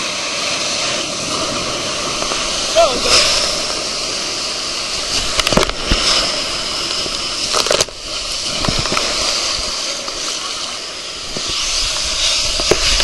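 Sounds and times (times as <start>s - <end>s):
water rushing and splashing: 0.0s - 13.0s
spray hitting microphone: 1.3s - 13.0s.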